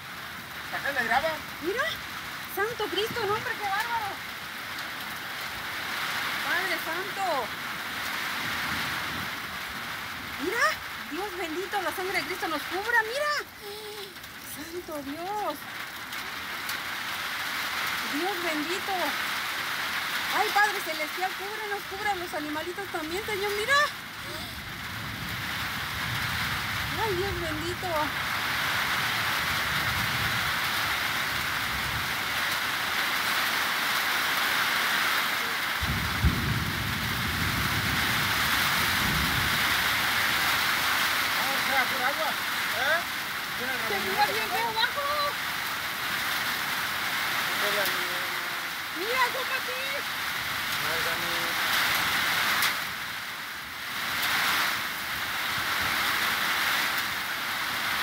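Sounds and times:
heavy rain falling: 0.0s - 58.0s
wind: 0.0s - 58.0s
low rumble: 35.8s - 39.7s.

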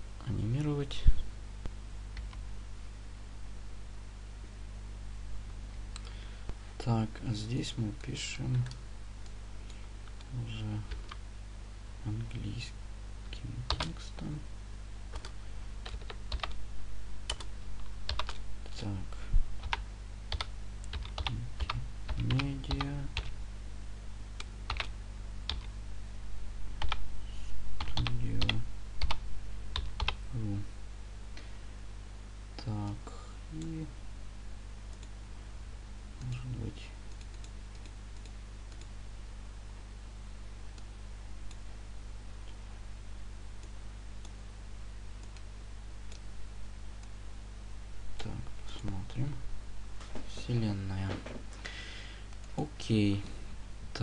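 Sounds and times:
steady low hum: 0.0s - 54.0s
computer mouse clicks: 2.2s - 2.4s, 34.9s - 35.1s, 37.1s - 38.9s, 45.2s - 46.2s
man humming: 30.3s - 30.7s.

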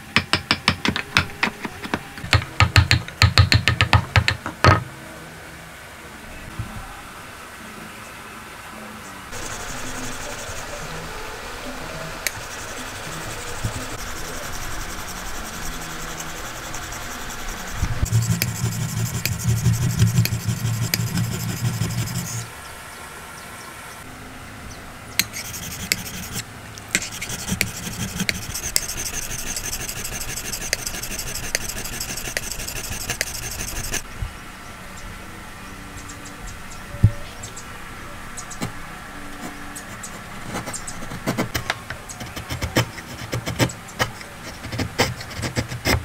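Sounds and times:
chisel scraping on sharpening stone: 12.3s - 22.4s, 25.2s - 26.4s, 27.0s - 34.0s.

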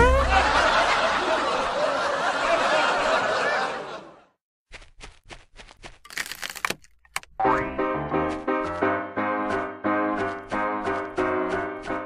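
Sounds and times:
crowd laughing: 0.0s - 4.4s.

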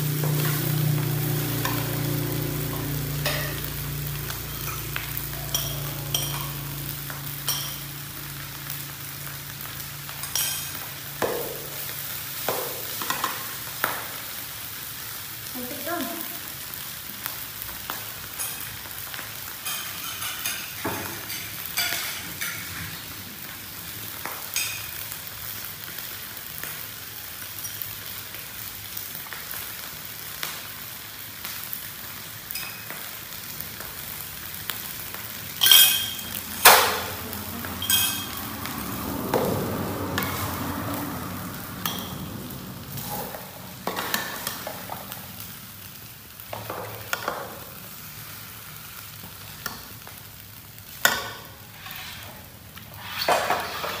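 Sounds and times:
metal spoon scraping a wok: 5.5s - 6.6s, 35.6s - 36.9s, 37.8s - 38.5s, 51.1s - 54.0s.

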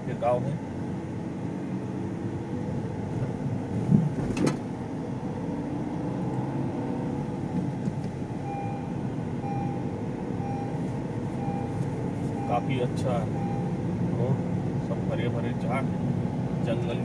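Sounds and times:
wind through open windows: 0.0s - 13.2s
car engine and road noise: 0.0s - 17.0s
faint short beeps: 8.4s - 9.8s.

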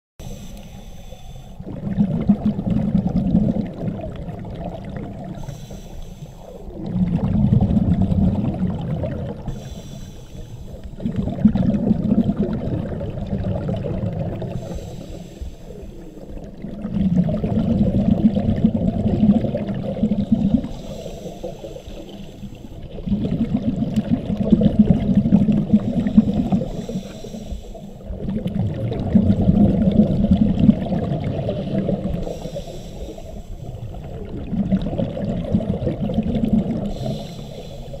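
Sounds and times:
regulator inhalation hiss: 0.2s - 1.6s, 5.4s - 6.7s, 9.4s - 11.0s, 14.5s - 16.2s, 20.6s - 22.8s, 25.9s - 28.1s, 32.2s - 33.8s, 36.9s - 38.0s
exhaled bubbles rushing: 1.6s - 5.6s, 6.4s - 9.9s, 10.6s - 27.1s, 27.9s - 38.0s.

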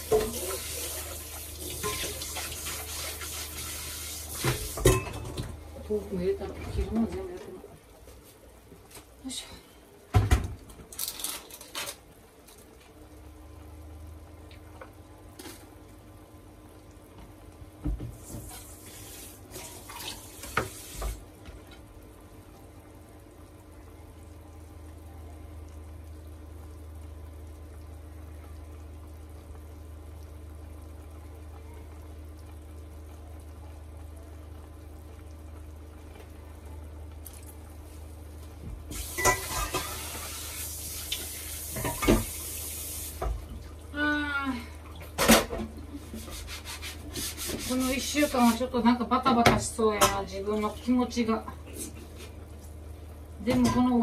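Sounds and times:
kitchen tap running: 0.0s - 7.5s, 17.1s - 21.9s, 38.5s - 52.6s.

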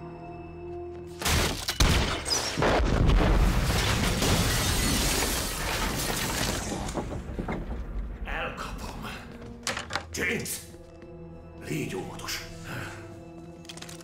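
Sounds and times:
shattering and flying debris: 1.2s - 7.9s.

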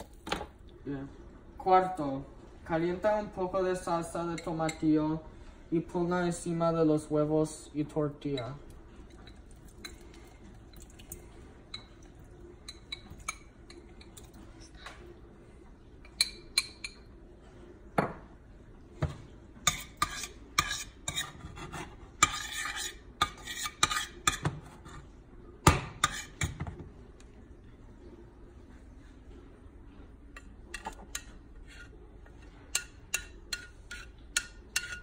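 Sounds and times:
metal spoon stirring in saucepan: 8.2s - 14.7s, 19.6s - 25.1s, 26.0s - 26.6s, 30.4s - 35.0s
spoon scraping pan: 19.6s - 25.1s, 26.0s - 26.6s, 30.4s - 35.0s.

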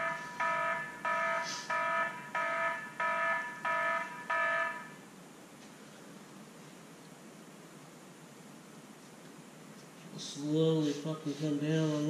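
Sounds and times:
mobile phone ringtone chime: 0.0s - 5.0s.

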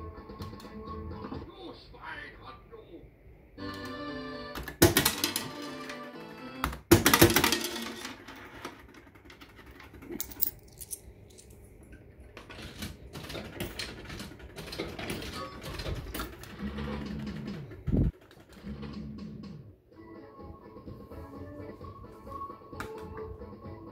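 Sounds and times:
fruit machine clicking and clattering: 12.3s - 18.6s.

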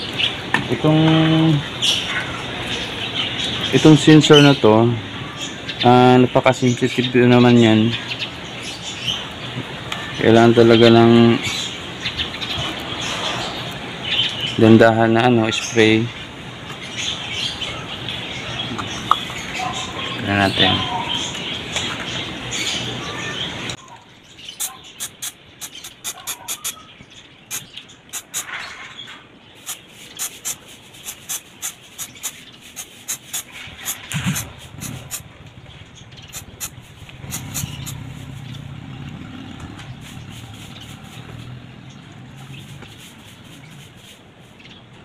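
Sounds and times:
aerosol spray hissing: 24.6s - 26.8s, 27.5s - 28.5s, 29.6s - 35.2s, 36.3s - 38.0s
short aerosol puffs: 24.6s - 26.8s, 27.5s - 28.5s, 29.6s - 35.2s, 36.3s - 38.0s.

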